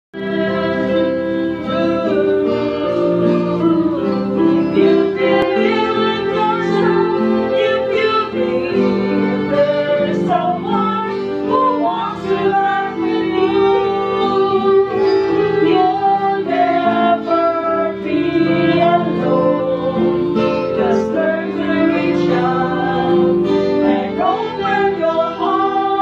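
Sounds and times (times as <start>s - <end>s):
violin melody: 0.1s - 26.0s.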